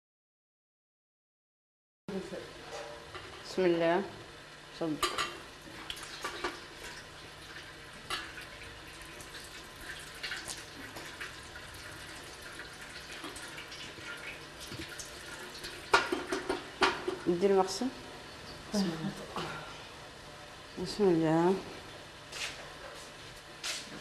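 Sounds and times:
water pouring and splashing into basin: 0:05.6 - 0:16.8.

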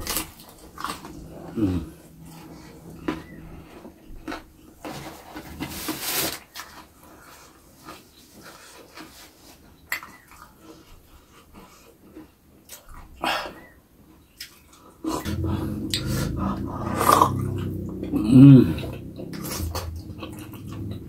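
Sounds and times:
chewing with wet clicks: 0:06.5 - 0:15.3.

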